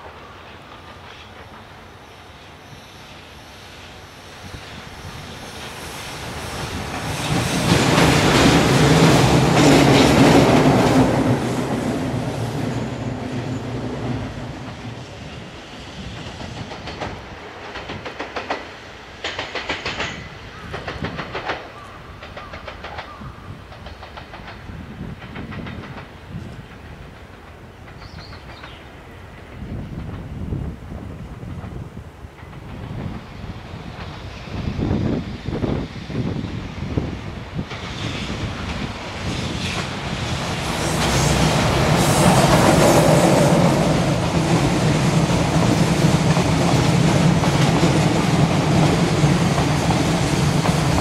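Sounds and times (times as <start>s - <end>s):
electric locomotive passing: 0.0s - 51.0s
wheels clicking over rail joints: 16.3s - 30.4s.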